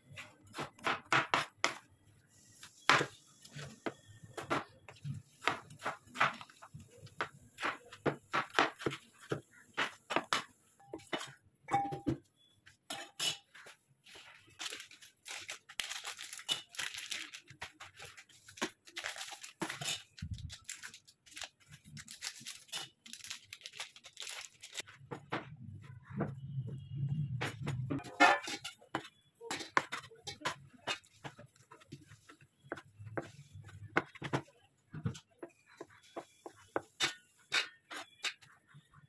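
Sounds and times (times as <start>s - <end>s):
plastic packets crinkling: 14.4s - 24.8s.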